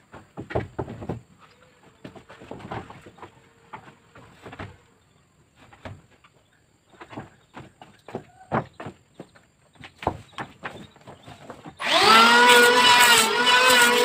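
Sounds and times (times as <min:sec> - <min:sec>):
wood planks knocking and thudding: 0:00.0 - 0:04.9, 0:05.6 - 0:11.8.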